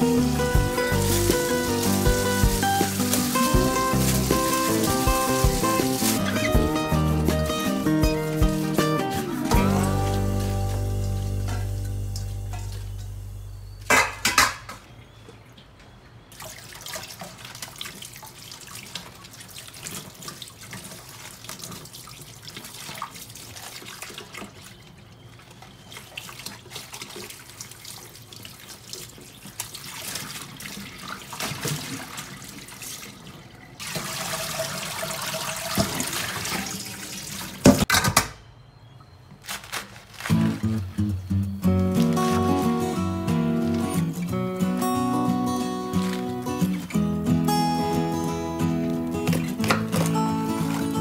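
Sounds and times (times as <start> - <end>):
tap water running into sink: 0.0 - 13.1, 33.8 - 37.8.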